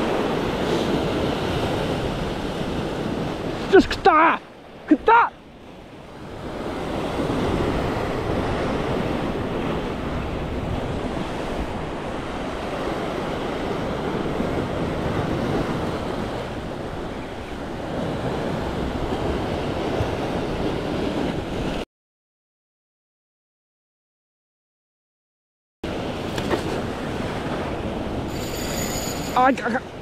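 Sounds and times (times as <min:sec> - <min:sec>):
sea surf on rocky shore: 0:00.0 - 0:21.8, 0:25.9 - 0:30.0
wind buffeting the microphone: 0:05.5 - 0:21.8.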